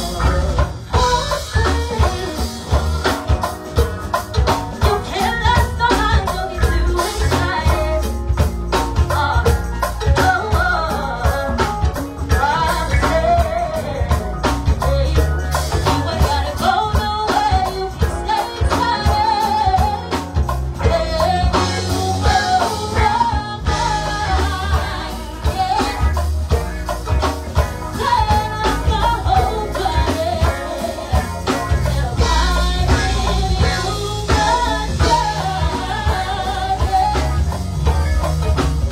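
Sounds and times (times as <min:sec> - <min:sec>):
bass guitar: 0:00.0 - 0:38.9
drum kit and congas beat: 0:00.0 - 0:38.9
person singing: 0:20.8 - 0:26.2, 0:27.9 - 0:37.7.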